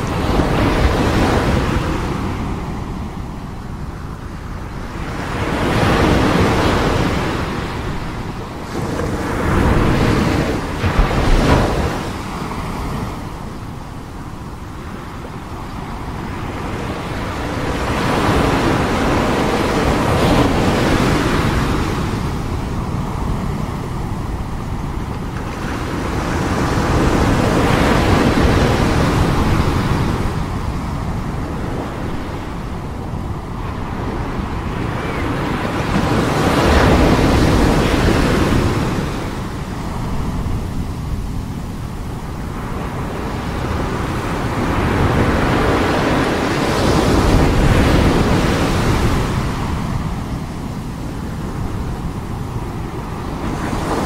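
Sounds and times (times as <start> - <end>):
ocean surf breaking: 0.0 - 54.0.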